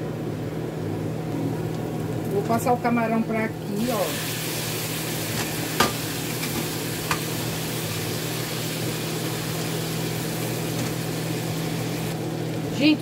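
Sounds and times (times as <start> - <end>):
shrimp sizzling in a pan: 3.7 - 12.2.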